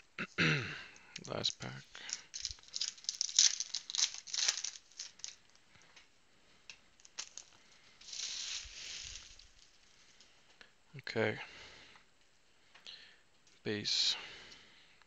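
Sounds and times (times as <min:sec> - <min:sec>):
foil wrapper crinkling and tearing: 0:01.2 - 0:05.6, 0:07.0 - 0:09.9.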